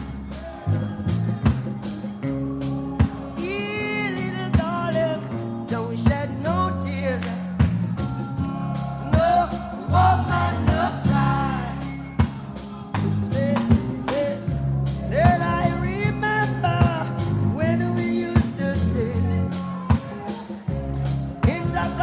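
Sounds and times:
song with vocals and drums: 0.0 - 22.0.

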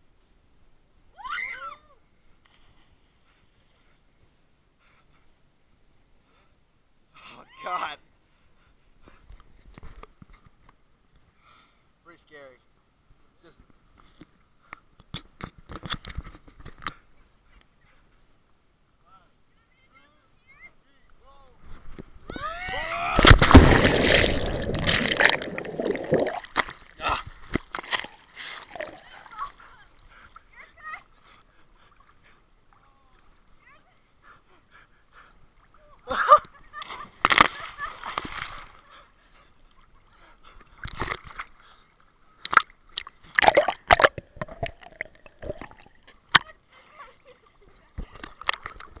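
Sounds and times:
loud splash into water: 23.1 - 26.7
choppy splashes: 23.1 - 29.8, 42.5 - 46.5
underwater bubbling: 23.2 - 27.0, 28.6 - 29.3, 42.5 - 46.2
person spitting water: 23.2 - 29.1, 42.4 - 46.4.

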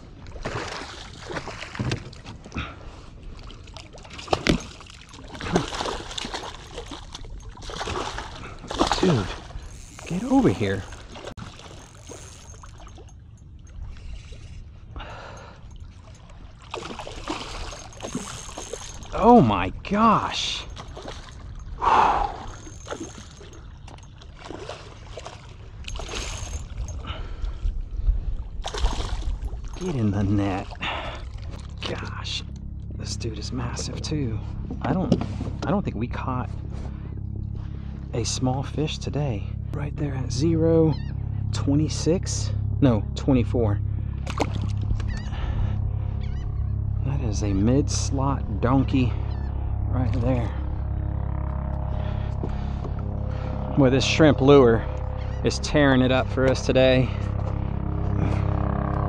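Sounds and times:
low rumble: 2.4 - 59.0
fish thrashing and splashing: 3.4 - 14.5, 15.6 - 19.2, 20.7 - 27.0, 28.6 - 30.0, 44.2 - 45.3.

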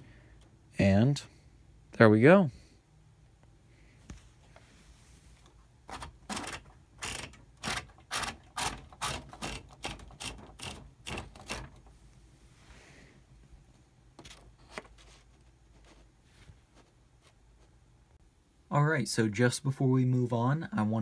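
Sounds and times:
typewriter mechanism clicking: 6.0 - 11.8.

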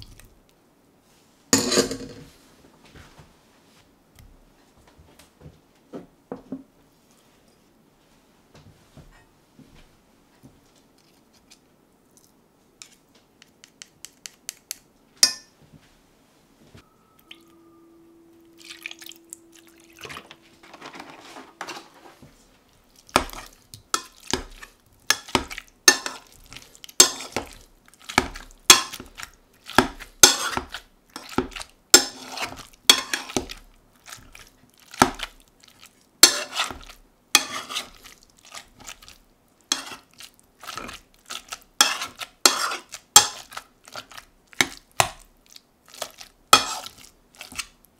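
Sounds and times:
spatula scraping metal pan: 20.0 - 22.3, 23.2 - 26.3, 27.0 - 27.5, 30.2 - 33.5, 36.2 - 38.7, 39.7 - 44.1, 46.6 - 47.7.

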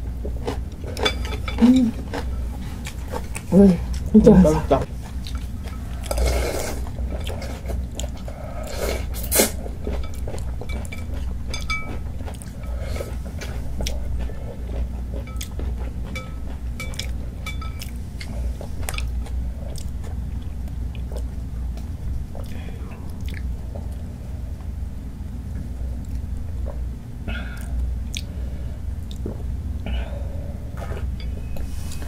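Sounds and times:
chewing noodles: 4.9 - 24.1.

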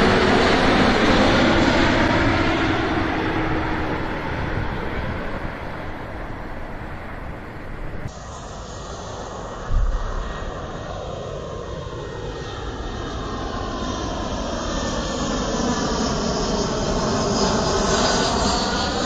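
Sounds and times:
jet engines rushing overhead: 0.0 - 19.0
brief low thump: 9.7 - 10.2.

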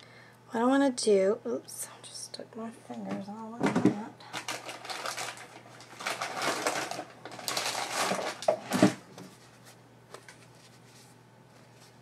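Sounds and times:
paper rustling and clicking: 4.3 - 12.0.

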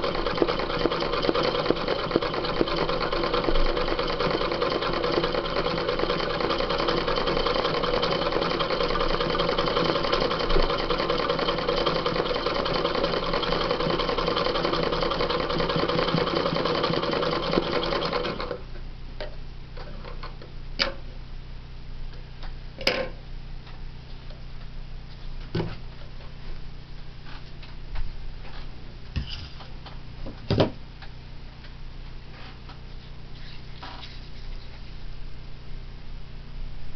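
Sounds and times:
sewing machine running: 0.0 - 18.6.

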